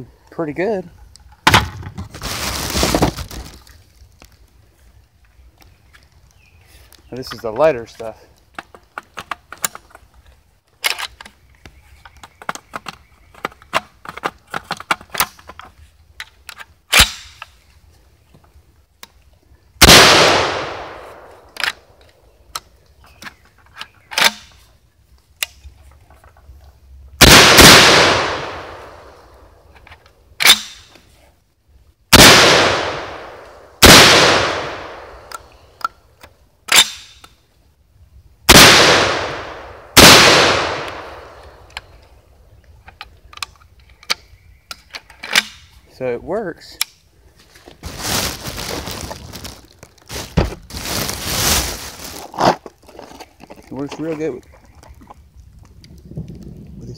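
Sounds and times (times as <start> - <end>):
shotgun shots: 19.8 - 21.5, 27.2 - 29.2, 32.1 - 35.3, 38.5 - 41.5.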